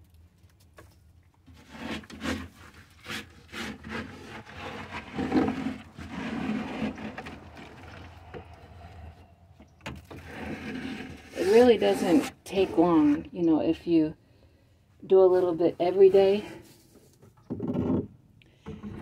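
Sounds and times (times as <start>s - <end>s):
bedding scraping against wood: 1.5s - 13.4s.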